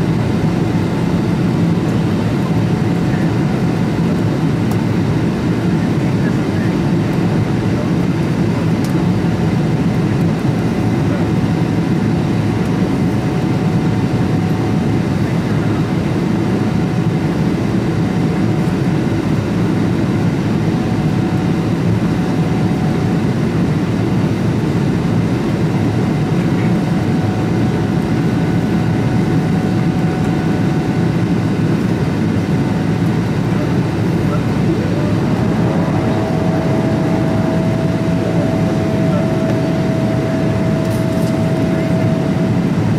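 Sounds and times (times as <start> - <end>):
airplane cabin roar: 0.0 - 42.9
faint steady whine: 0.0 - 42.9
rushing airflow: 32.8 - 42.9.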